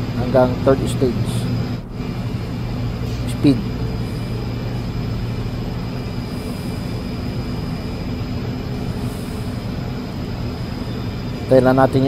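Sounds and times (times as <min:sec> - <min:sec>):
machine drone with low hum: 0:00.0 - 0:12.0.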